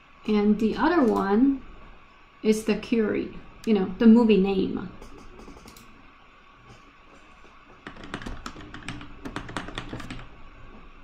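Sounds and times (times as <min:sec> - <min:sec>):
typing on keyboard: 0:07.8 - 0:10.3.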